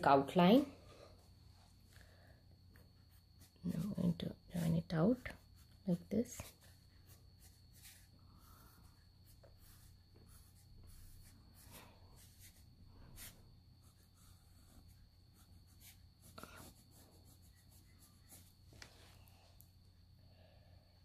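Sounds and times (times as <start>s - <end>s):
low steady hum: 0.0s - 21.0s
pencil scratching on paper: 2.8s - 18.6s.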